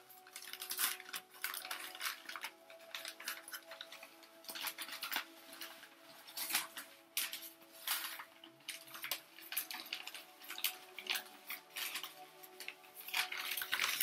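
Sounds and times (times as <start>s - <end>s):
newspaper crinkling and rustling: 0.0s - 14.0s.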